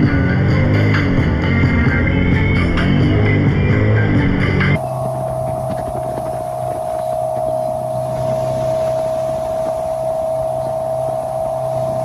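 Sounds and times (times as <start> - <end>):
motorboat engine drone: 0.0 - 12.0
wind: 0.0 - 12.0
water rushing from wake: 4.8 - 12.0.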